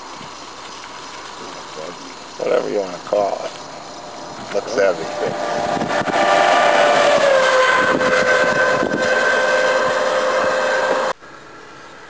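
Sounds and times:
engine running with whine: 3.5 - 11.2.

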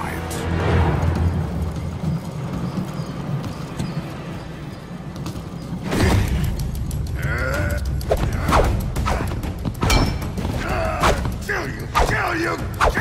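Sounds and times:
conveyor machinery rumbling: 0.0 - 8.5.

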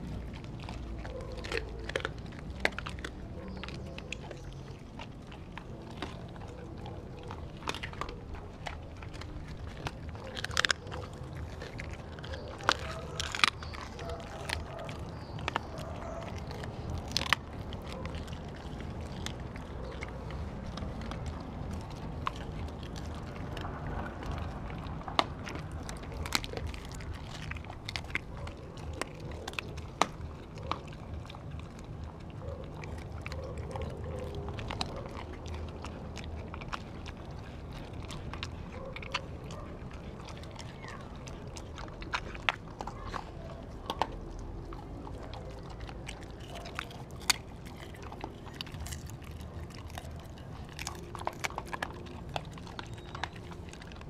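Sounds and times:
dogs chewing and biting: 0.0 - 54.0
steady low rumble: 0.0 - 54.0.

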